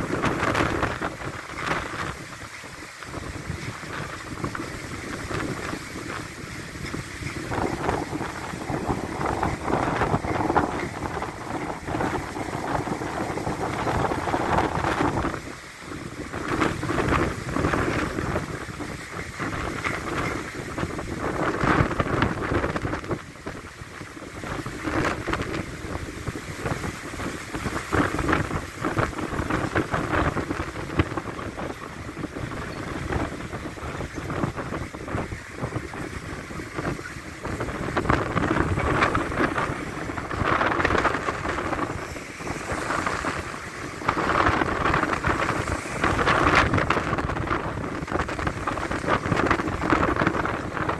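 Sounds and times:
rain: 0.0s - 50.9s
storm wind buffeting microphone: 0.0s - 50.9s.

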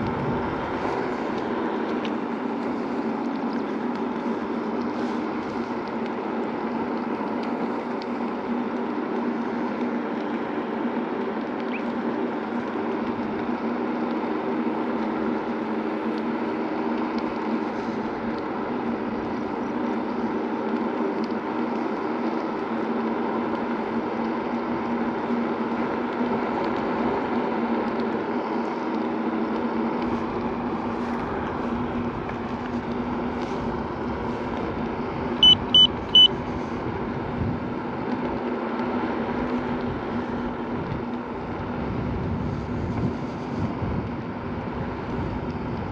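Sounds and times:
wind noise: 0.0s - 1.6s, 31.0s - 38.0s, 39.7s - 45.9s
electric scooter motor hum: 0.0s - 45.9s
quick high beeps: 35.4s - 36.3s.

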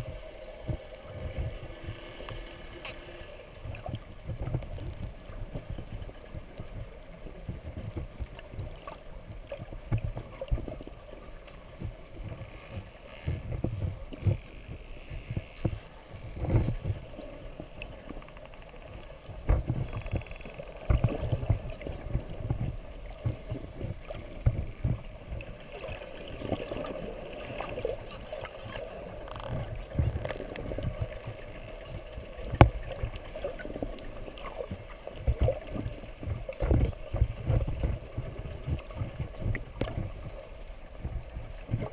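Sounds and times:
dolphins whistling underwater: 0.0s - 3.3s, 4.5s - 6.8s, 7.7s - 8.9s, 12.5s - 13.4s, 19.4s - 24.0s, 25.9s - 34.6s, 37.4s - 41.9s.

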